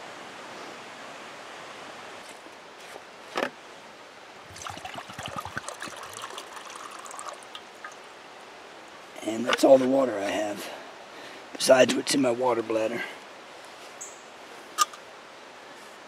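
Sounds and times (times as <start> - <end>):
creek rushing: 0.0 - 16.0
water poured into metal cup: 4.5 - 8.0.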